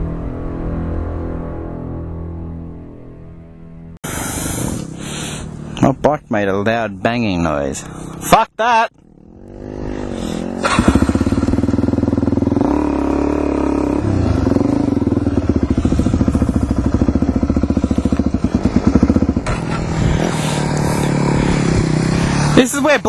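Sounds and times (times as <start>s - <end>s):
dirt bike engine running: 4.1s - 6.5s, 9.0s - 23.0s.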